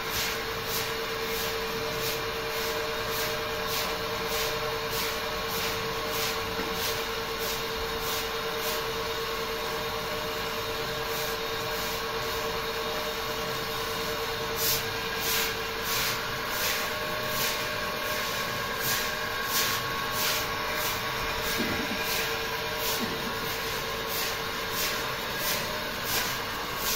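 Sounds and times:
stiff broom swishing on wet concrete: 0.1 - 8.9, 14.6 - 26.9.

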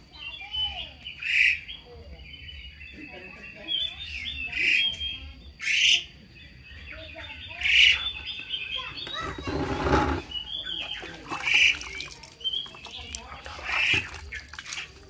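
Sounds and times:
faint high chirping: 0.0 - 15.0.

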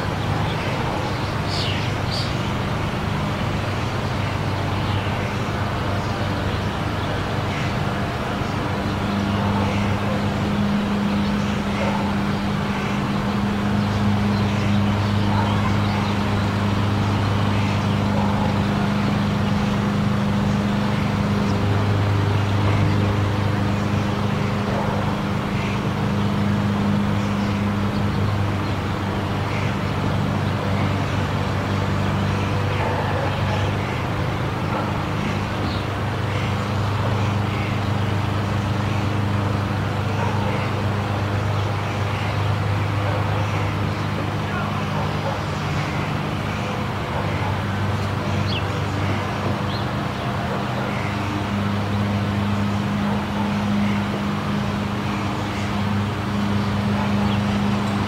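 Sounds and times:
monorail motor hum: 0.0 - 58.0.

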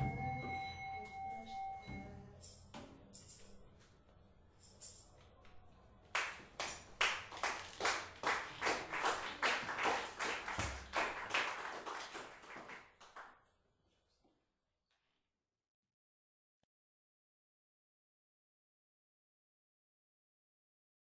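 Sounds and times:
audience clapping: 6.1 - 13.4.

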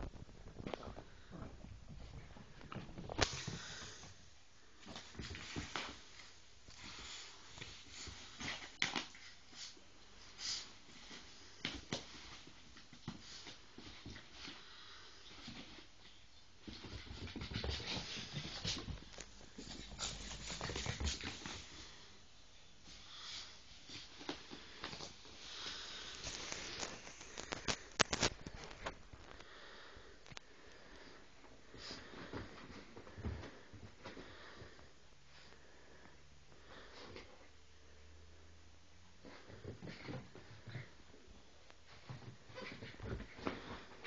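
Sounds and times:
fabric dog bed rustling and scraping: 15.3 - 21.9.

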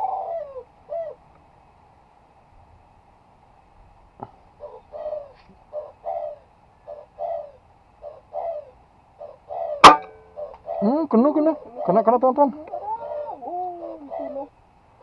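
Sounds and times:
dove cooing: 0.0 - 1.3, 4.2 - 14.6.

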